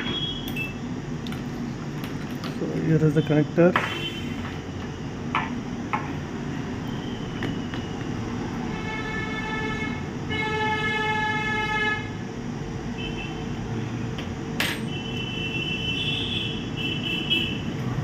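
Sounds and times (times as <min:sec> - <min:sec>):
vehicle horn: 0:08.6 - 0:12.2, 0:14.9 - 0:17.7.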